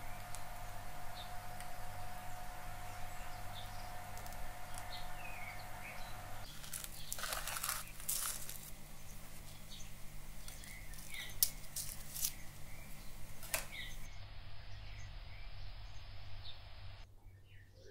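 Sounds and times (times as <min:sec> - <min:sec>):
steady low hum: 0:00.0 - 0:17.4
small birds chirping: 0:00.0 - 0:17.9
paper rustling: 0:06.5 - 0:09.7, 0:10.3 - 0:14.0.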